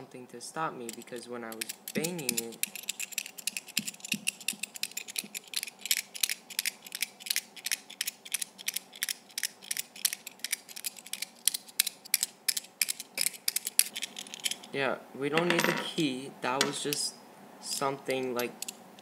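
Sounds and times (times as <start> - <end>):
metal lock rattling against palm: 0.9 - 14.7.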